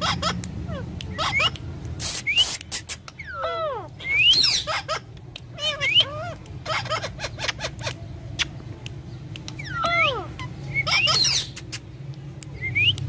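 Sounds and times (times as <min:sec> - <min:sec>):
parakeet squawks and whistles: 0:00.0 - 0:08.5, 0:09.5 - 0:11.9
sharp clicks: 0:07.4 - 0:10.5.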